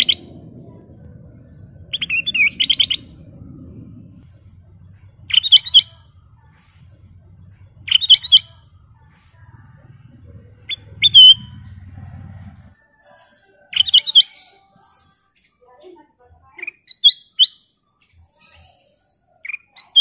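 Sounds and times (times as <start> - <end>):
bird singing whistled notes: 0.0 - 0.4, 1.8 - 3.3, 4.0 - 6.3, 7.3 - 8.9, 10.6 - 11.7, 13.6 - 15.6, 16.6 - 20.0.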